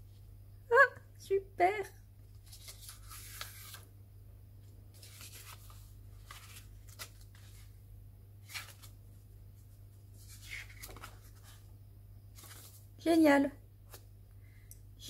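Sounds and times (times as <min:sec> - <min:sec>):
low steady hum: 0:00.0 - 0:15.0
paper pages rustling: 0:02.3 - 0:03.9, 0:04.6 - 0:07.8, 0:08.4 - 0:11.7, 0:12.3 - 0:12.9.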